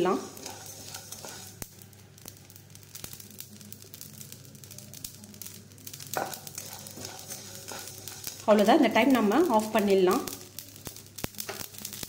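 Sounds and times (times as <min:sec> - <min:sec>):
wooden spatula scraping seeds: 0:00.0 - 0:01.8, 0:05.9 - 0:11.0
mustard seeds popping in a pan: 0:00.0 - 0:12.0.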